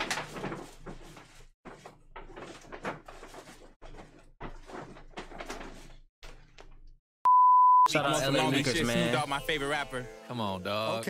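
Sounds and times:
rustling and knocking: 0.0 - 6.7.

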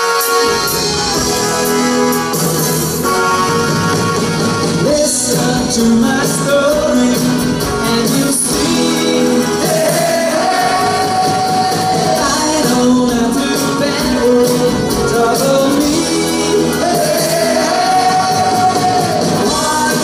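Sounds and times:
live pop band playing: 0.0 - 20.0
man singing lead: 4.8 - 20.0.

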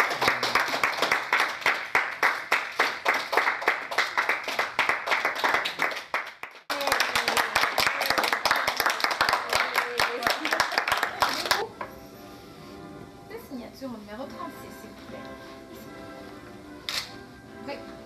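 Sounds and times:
group applauding: 0.0 - 11.7.

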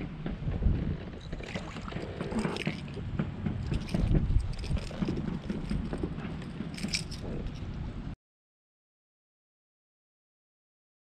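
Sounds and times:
wind rumbling on microphone: 0.0 - 8.2
small clicks and knocks from gear: 1.2 - 7.8.

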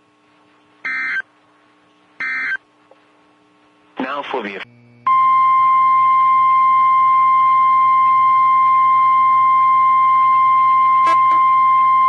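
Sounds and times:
faint low hum: 0.0 - 12.0
steady alarm tone from radio: 5.1 - 12.0.

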